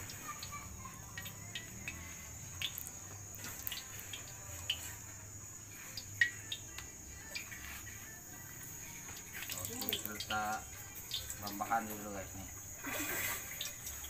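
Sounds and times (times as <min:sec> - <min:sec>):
oil ticking and popping in wok: 0:00.0 - 0:07.6, 0:09.0 - 0:11.9, 0:13.5 - 0:14.0.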